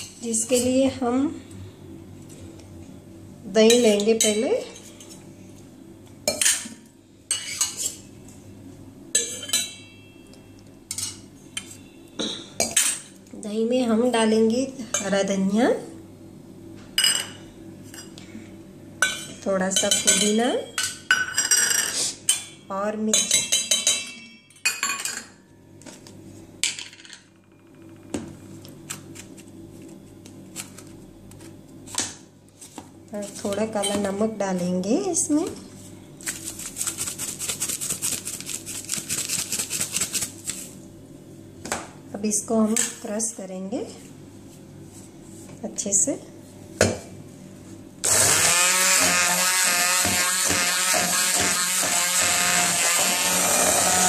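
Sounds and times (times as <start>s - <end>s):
spoon clinking against steel bowl: 9.1s - 10.3s.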